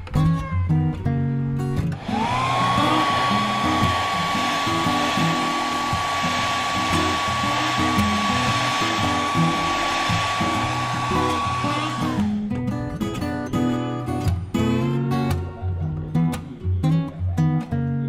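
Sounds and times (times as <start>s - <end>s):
hair dryer blowing: 2.0s - 12.4s.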